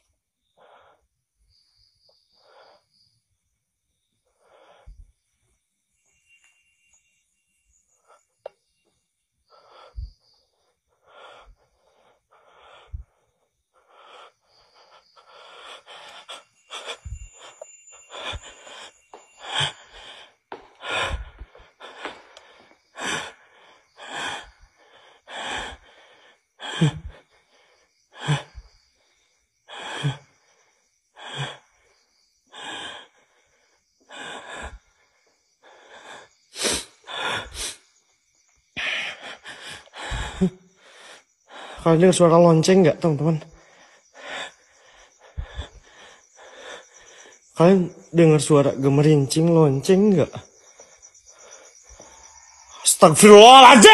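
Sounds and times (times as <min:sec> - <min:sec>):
person breathing heavily: 0:00.0 - 0:01.2, 0:04.2 - 0:05.4, 0:09.4 - 0:37.9, 0:38.8 - 0:41.9, 0:43.1 - 0:48.1.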